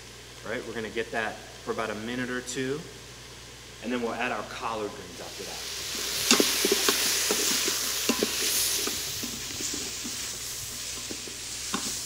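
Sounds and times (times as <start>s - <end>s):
vegetables sizzling in oil: 0.0s - 12.0s
wooden spoon knocking metal pot: 6.3s - 9.4s.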